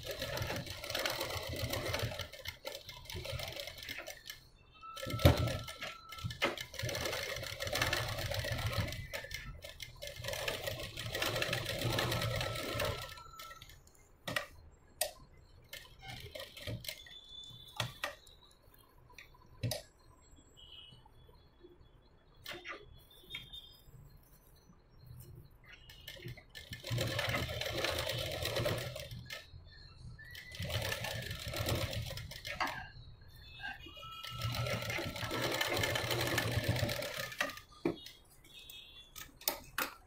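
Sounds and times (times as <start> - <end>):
sewing machine stitching fabric: 0.0 - 18.6, 25.6 - 38.2
scattered clicks: 0.0 - 19.9.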